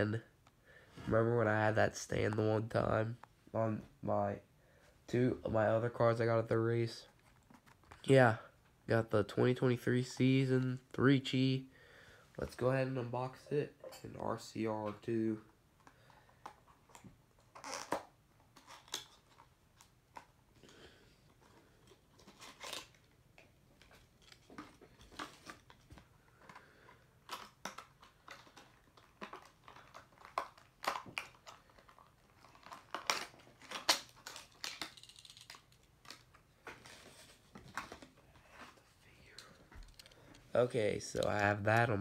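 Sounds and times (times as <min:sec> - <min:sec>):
cardboard and plastic crinkling: 0:23.8 - 0:42.0.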